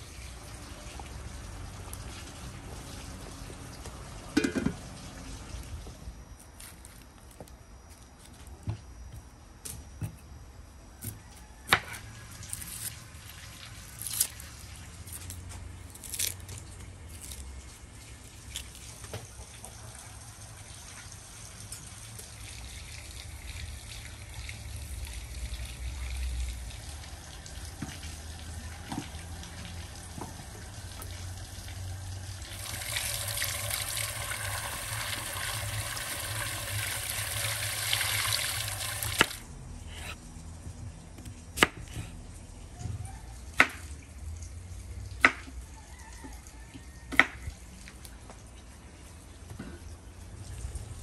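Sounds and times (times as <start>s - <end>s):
water pouring from jug: 32.4s - 39.4s.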